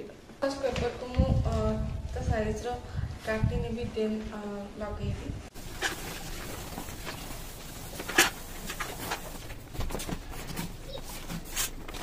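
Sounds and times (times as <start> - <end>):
paper rustling and crinkling: 5.5 - 12.0.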